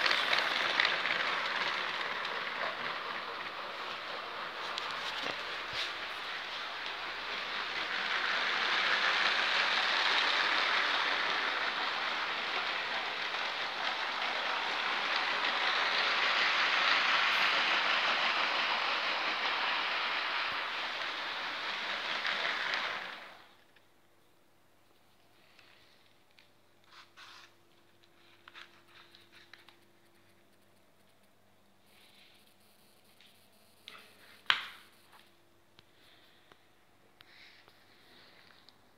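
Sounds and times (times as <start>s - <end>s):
toy trains whirring on plastic track: 0.0s - 23.8s, 25.4s - 30.3s, 33.8s - 35.3s.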